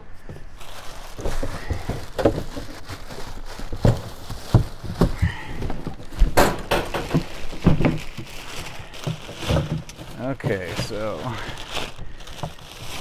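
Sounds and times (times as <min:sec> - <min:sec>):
plastic sheeting crinkling: 0:00.0 - 0:13.0.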